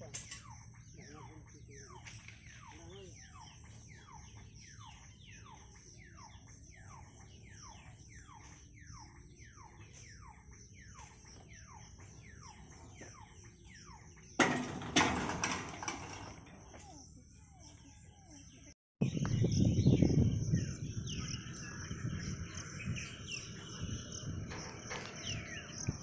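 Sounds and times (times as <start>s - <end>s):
warning hooter sweeping: 0.5s - 15.3s
rattling knocks: 14.3s - 16.9s.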